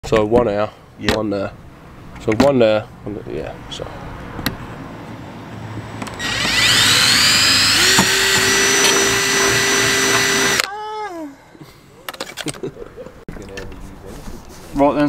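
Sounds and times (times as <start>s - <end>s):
cordless drill boring: 6.2s - 10.7s.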